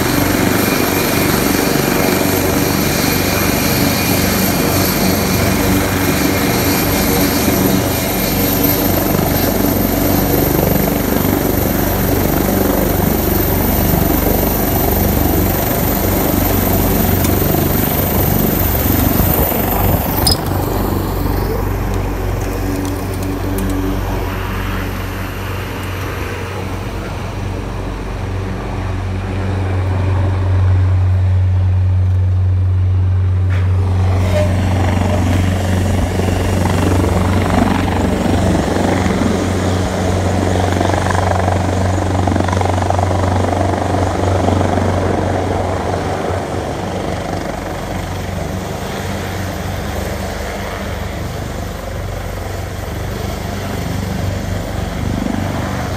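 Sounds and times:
helicopter rotors droning: 0.0 - 55.9.

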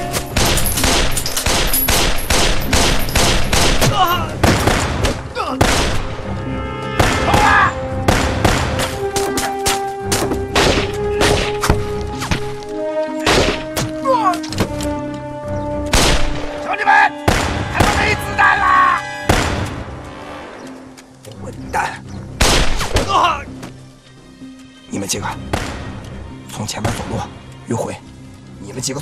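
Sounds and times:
dramatic music score: 0.0 - 29.0.

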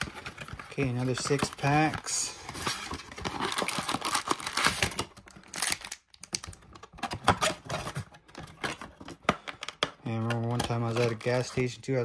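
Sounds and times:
cardboard box and packs handled: 0.0 - 12.0.

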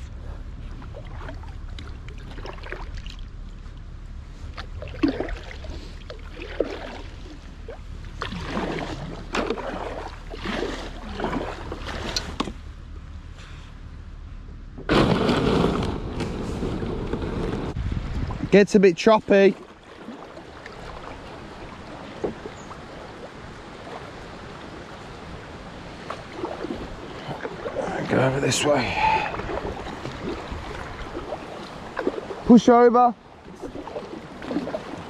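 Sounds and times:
paddle splashing in water: 0.0 - 12.7, 14.8 - 18.4, 19.0 - 35.0
wind rumble on microphone: 14.3 - 18.8, 19.6 - 35.0.

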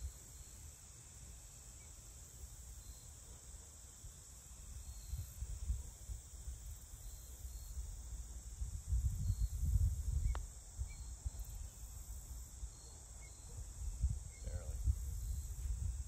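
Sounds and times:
high-pitched insect buzz: 0.0 - 16.0
wind rumble on microphone: 5.1 - 6.9, 7.7 - 11.7, 13.5 - 16.0.

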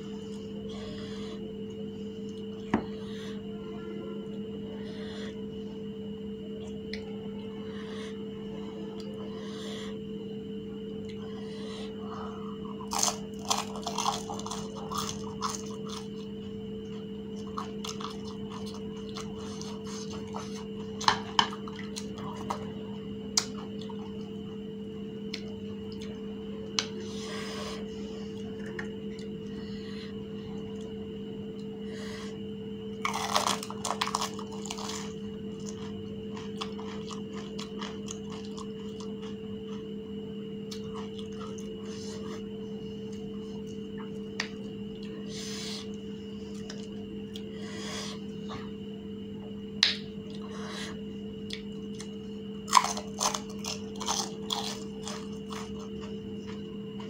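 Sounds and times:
steady hum: 0.0 - 57.0
crisp shells crunching when chewed: 12.7 - 22.7, 32.9 - 39.8, 40.7 - 42.0, 51.5 - 57.0.

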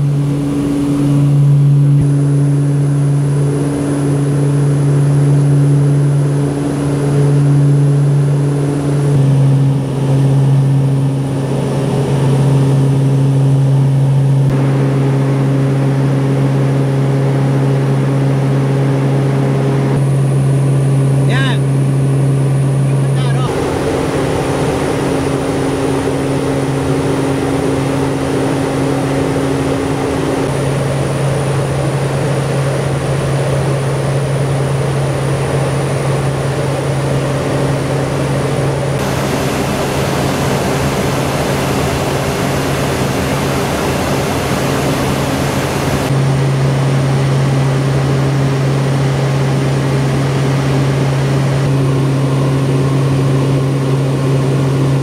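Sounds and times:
propeller hum: 0.0 - 55.0.

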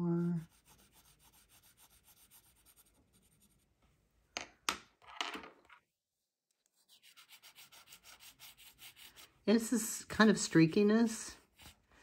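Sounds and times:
pencil scratching on paper: 0.2 - 3.7, 6.7 - 9.4, 11.4 - 11.8.

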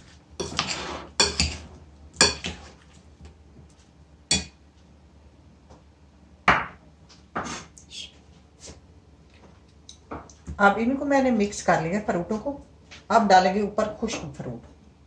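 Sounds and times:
metal spoon clinking glass bowl: 1.2 - 1.6.

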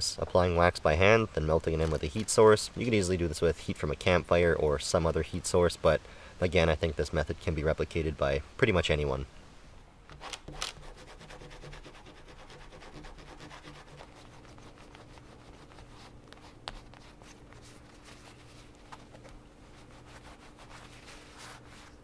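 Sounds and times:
wax rubbing on fabric: 10.7 - 22.0.

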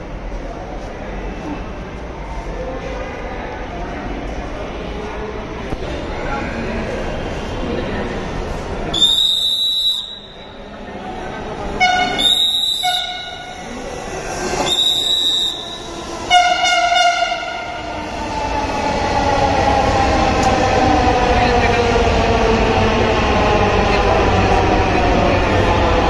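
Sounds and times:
train rumble: 10.7 - 26.0.

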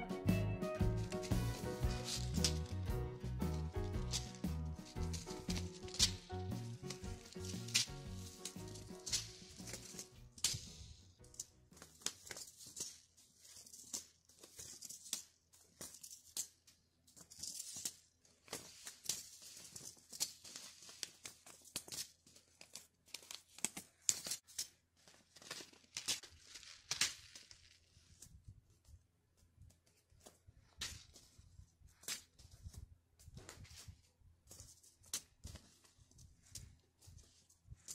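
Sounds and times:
paper packets crinkling: 1.0 - 16.2, 17.3 - 28.2.

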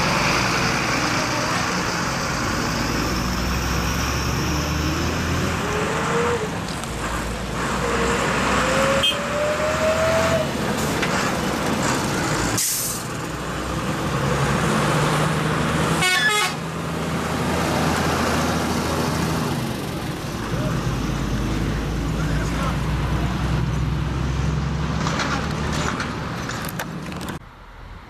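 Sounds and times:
diesel truck engines running: 0.0 - 28.0
truck horn toot: 8.9 - 9.4, 15.9 - 16.6.

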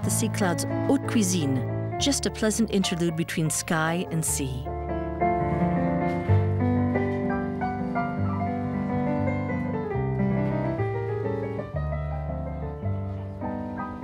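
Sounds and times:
jazz piano chords: 0.0 - 14.0.

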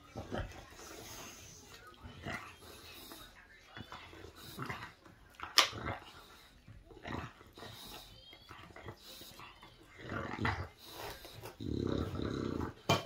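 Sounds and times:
dog chewing a bone: 0.0 - 13.0.

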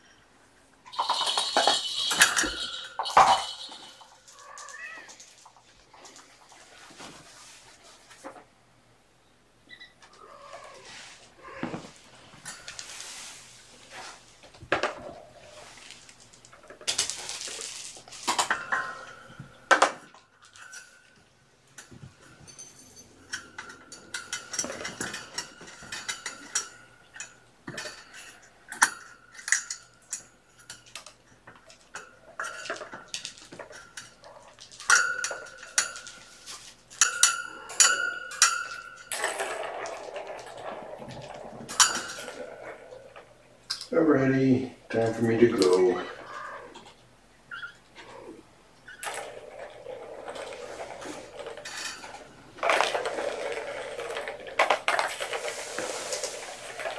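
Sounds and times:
bell jingles: 0.9 - 4.4
plastic balls clicking in toy track: 0.9 - 5.5, 48.9 - 56.9.

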